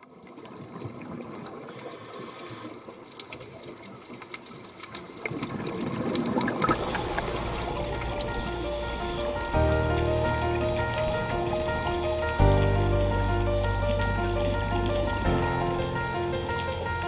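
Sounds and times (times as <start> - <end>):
trickling crackling noise: 0.0 - 17.0
low rumble: 6.7 - 17.0.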